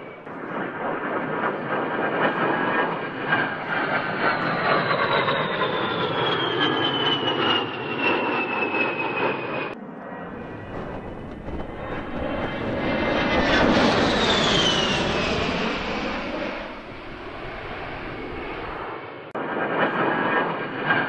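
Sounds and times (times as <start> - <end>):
model jet fans whining: 10.2 - 18.8.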